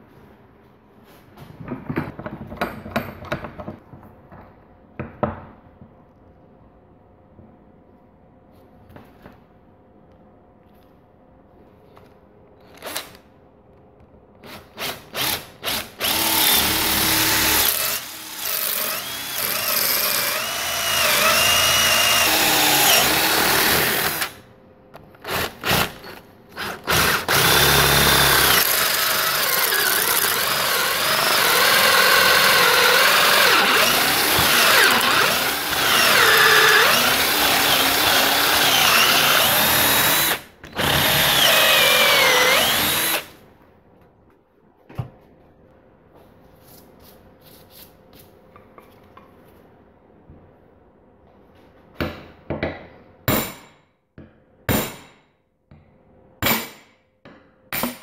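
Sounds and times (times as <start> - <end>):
power drill boring into wood: 15.2 - 24.4, 26.6 - 43.3.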